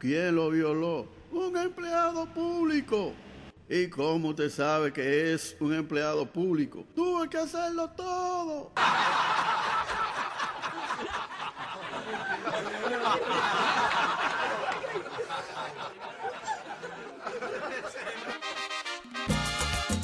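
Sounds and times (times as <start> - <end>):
crowd laughing: 8.8 - 19.2.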